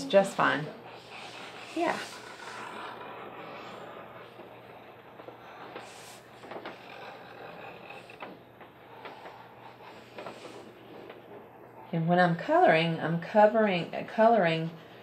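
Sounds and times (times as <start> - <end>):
crayon rubbing on paper: 0.0 - 8.2.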